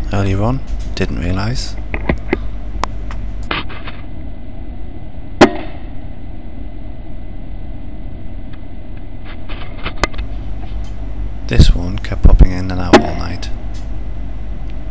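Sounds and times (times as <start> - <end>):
low steady hum: 0.0 - 14.9
air rifle firing crack: 5.4 - 5.9.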